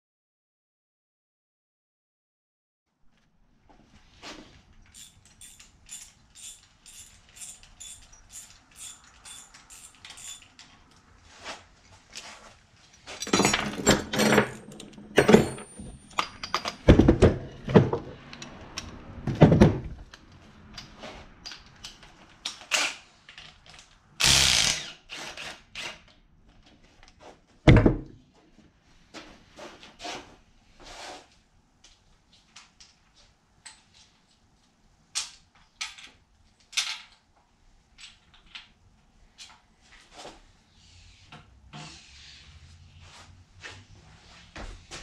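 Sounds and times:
ratchet clicks: 0:04.9 - 0:10.5.

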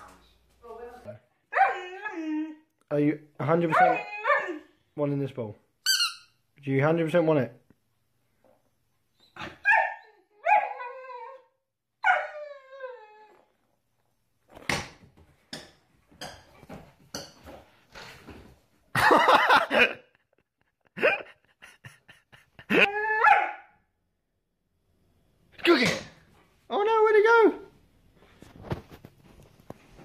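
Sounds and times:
puppy bark: 0:01.5 - 0:01.8, 0:03.7 - 0:04.6, 0:09.6 - 0:10.8, 0:23.2 - 0:23.7
puppy whining yelps: 0:01.5 - 0:02.6, 0:03.7 - 0:04.6, 0:09.2 - 0:13.4, 0:22.8 - 0:23.7.

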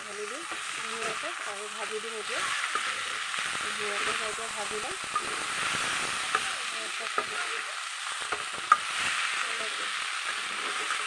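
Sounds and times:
stir-frying sizzle: 0:00.0 - 0:11.0.

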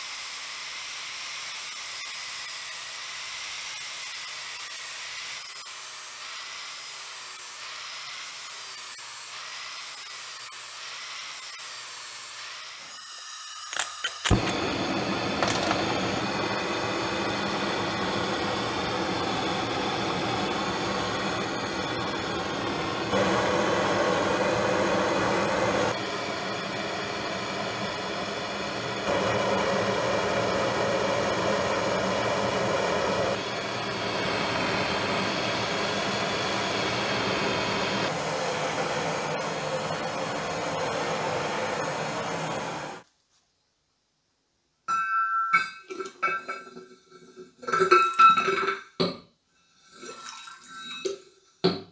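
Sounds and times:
gas burner hissing: 0:14.2 - 0:43.0.

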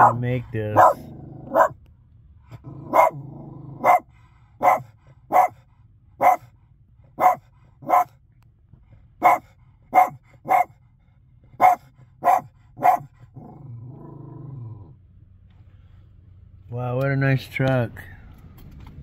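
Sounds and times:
dog barking: 0:00.0 - 0:01.8, 0:02.8 - 0:03.2, 0:03.8 - 0:05.6, 0:06.2 - 0:06.5, 0:07.2 - 0:08.2, 0:09.2 - 0:10.8, 0:11.6 - 0:13.1.

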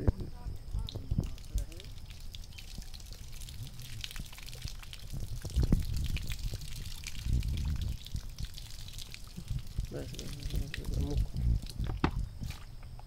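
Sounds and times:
water trickling onto mud: 0:00.0 - 0:13.0
small splashes: 0:00.8 - 0:12.7
dull thumps: 0:11.8 - 0:12.7.

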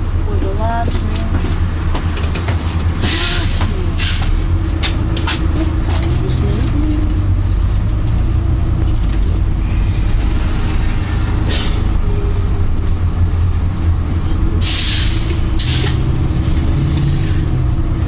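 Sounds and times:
bus diesel engine droning: 0:00.0 - 0:18.0
air brake hisses: 0:14.6 - 0:16.0.

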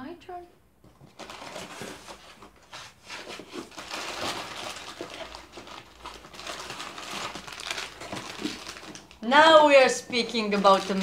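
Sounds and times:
plastic wrappers crinkling: 0:01.0 - 0:11.0.

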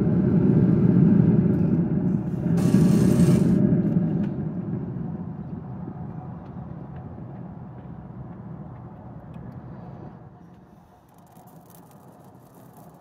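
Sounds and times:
low rumble: 0:00.0 - 0:10.4.

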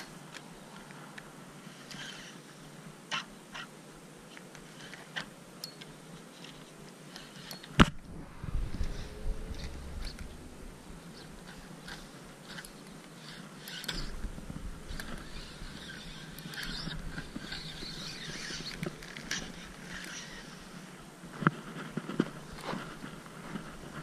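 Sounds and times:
fishing reel winding: 0:11.9 - 0:14.2, 0:14.9 - 0:20.9.

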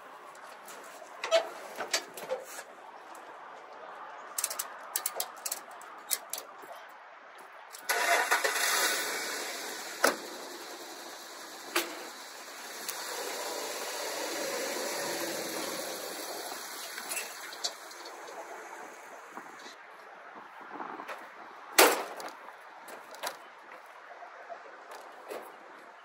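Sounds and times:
ratchet strap clicks: 0:04.4 - 0:06.5
pickup truck engine running: 0:07.9 - 0:19.7.

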